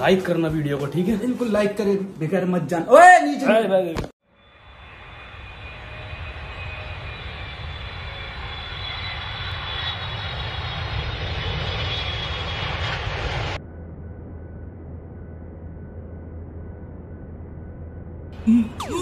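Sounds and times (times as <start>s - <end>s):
faint high jet whine: 4.3s - 19.0s
jet engines rushing: 4.4s - 13.6s.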